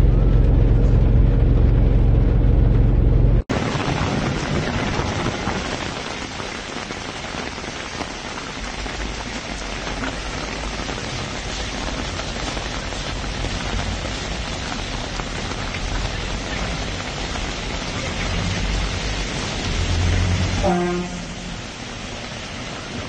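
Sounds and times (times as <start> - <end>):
low rumble: 0.0 - 5.7
rain falling on street: 3.5 - 23.0.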